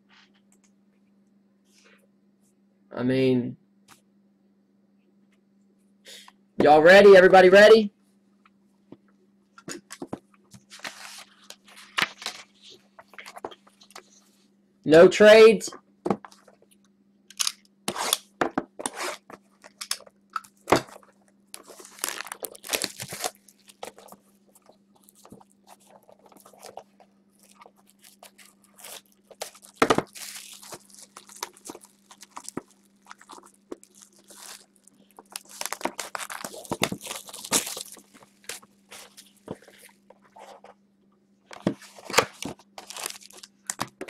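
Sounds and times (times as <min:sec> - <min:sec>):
cardboard and plastic wrap crackling: 0:18.9 - 0:40.6, 0:41.6 - 0:44.0.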